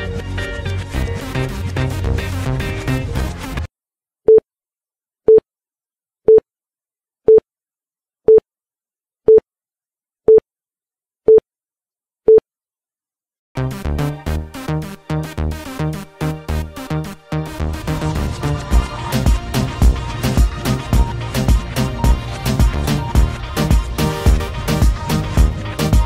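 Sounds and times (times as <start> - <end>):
electronic dance music: 0.0 - 3.7, 13.6 - 26.0.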